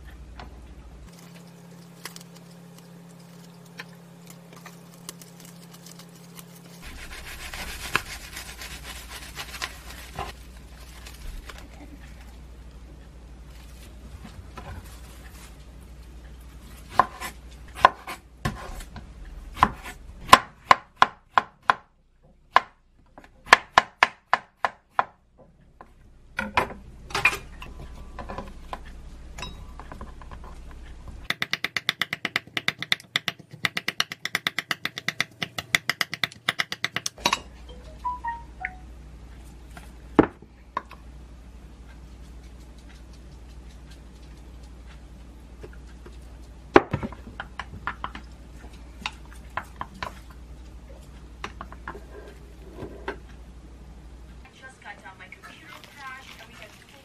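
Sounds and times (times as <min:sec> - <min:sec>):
knife chopping on wooden board: 0:16.9 - 0:18.8, 0:19.6 - 0:21.9.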